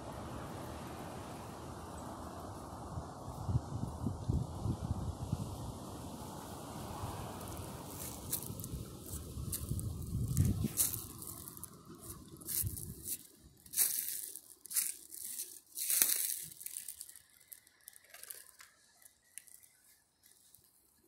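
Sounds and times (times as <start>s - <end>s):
footsteps crunching dry leaves: 7.3s - 20.8s.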